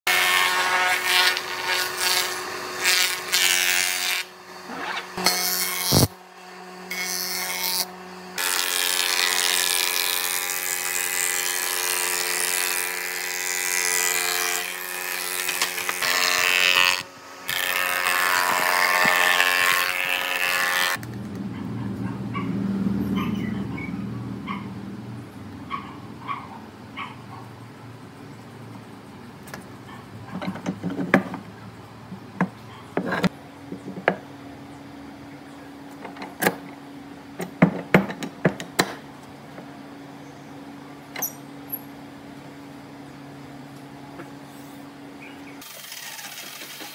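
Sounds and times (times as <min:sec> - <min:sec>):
planer machine cutting wood: 0:00.1 - 0:21.0.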